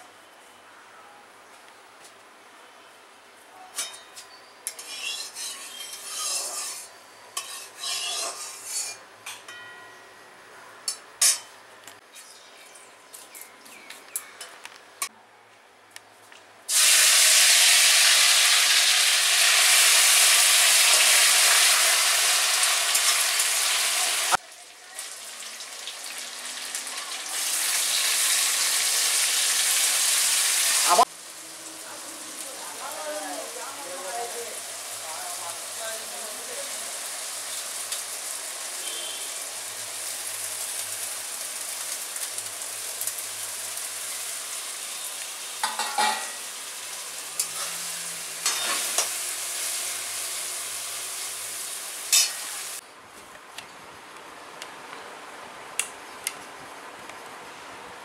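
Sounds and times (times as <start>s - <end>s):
oil frying sizzle: 16.7s - 52.8s.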